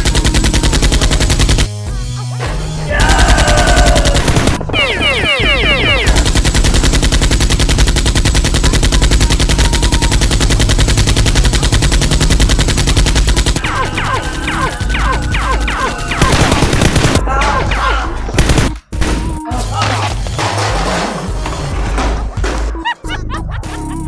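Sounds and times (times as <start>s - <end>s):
rapid machine-gun fire: 0.0s - 1.7s, 3.0s - 17.2s, 18.4s - 18.8s
falling tones: 4.7s - 6.2s.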